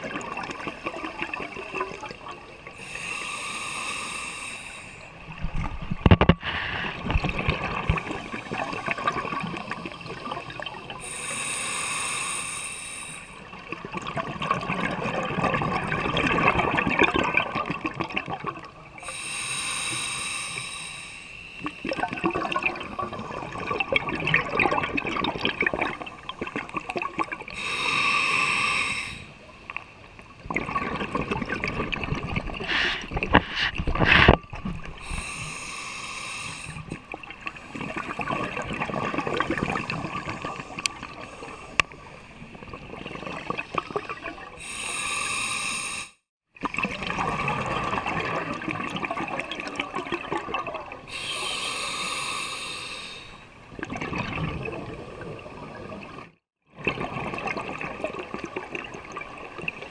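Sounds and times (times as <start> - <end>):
hissing regulator inhale: 2.8 - 5.1, 6.4 - 7.2, 11.0 - 13.4, 19.0 - 21.9, 27.5 - 29.4, 32.6 - 34.4, 35.0 - 37.1, 44.6 - 46.3, 51.1 - 53.6.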